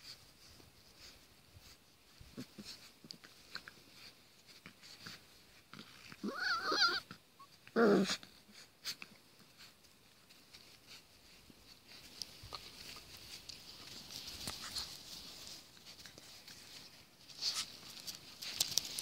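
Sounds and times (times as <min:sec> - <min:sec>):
puppy growling: 0:05.7 - 0:08.4
scuffles in grass: 0:09.6 - 0:19.0.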